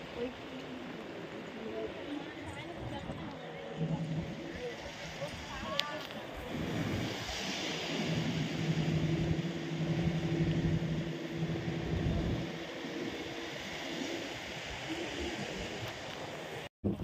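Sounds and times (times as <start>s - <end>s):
sea noise: 0.0s - 17.0s
wind: 0.0s - 17.0s
low-pitched drone: 3.3s - 5.5s, 6.5s - 15.0s.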